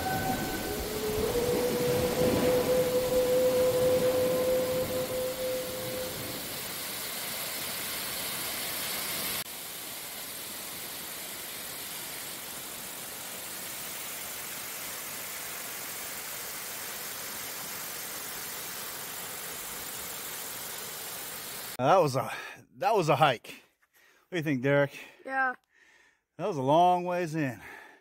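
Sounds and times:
waterfall roaring onto rock: 0.0s - 21.8s.

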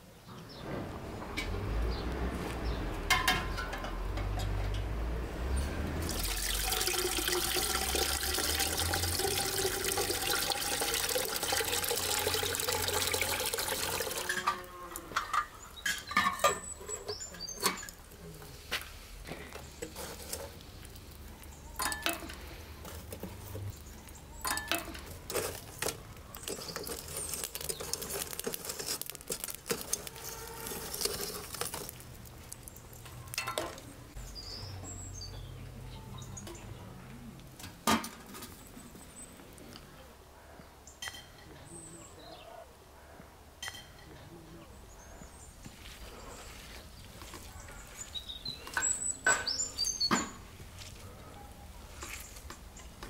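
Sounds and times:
water pouring into metal container: 5.9s - 14.7s, 24.4s - 32.4s.

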